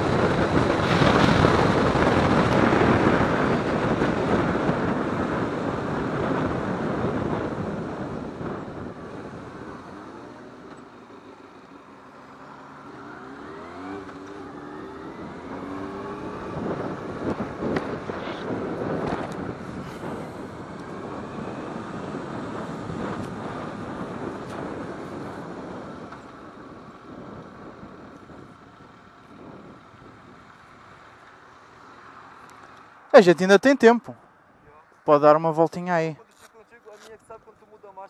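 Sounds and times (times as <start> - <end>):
wind rushing over microphone: 0.0 - 10.6, 13.1 - 31.2
motorcycle engine accelerating: 11.9 - 30.4.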